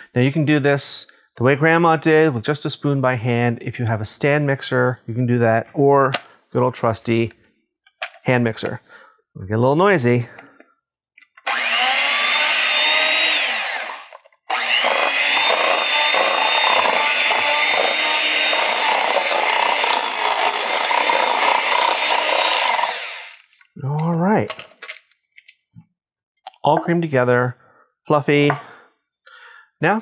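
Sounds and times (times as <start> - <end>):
electric mixer running: 11.4 - 23.5.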